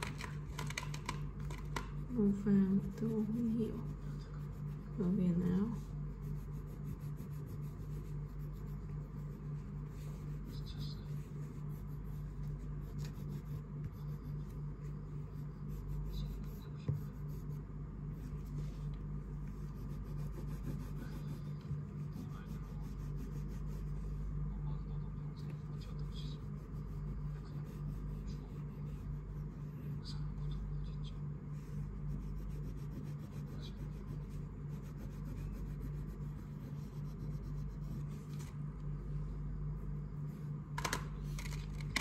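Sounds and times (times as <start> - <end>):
steady low hum: 0.0 - 42.0
crayon scratching on paper: 2.0 - 24.3, 25.7 - 30.2, 30.9 - 38.5.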